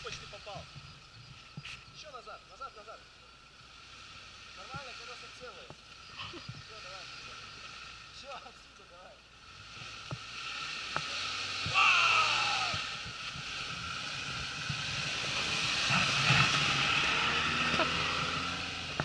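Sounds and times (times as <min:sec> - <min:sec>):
car engine revving: 0:09.4 - 0:19.0.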